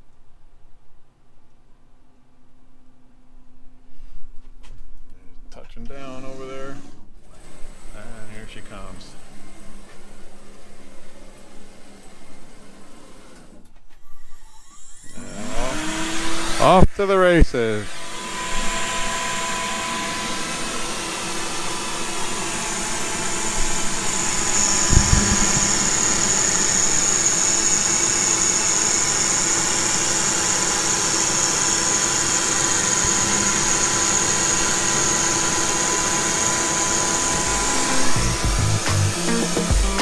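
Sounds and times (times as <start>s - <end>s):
router spindle whine: 6.1s - 40.0s
high whine: 18.5s - 36.3s
brief thump: 24.8s - 27.0s.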